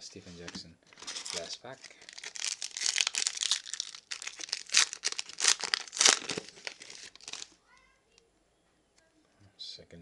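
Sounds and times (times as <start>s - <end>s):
foil wrapper crinkling: 0.9s - 7.6s.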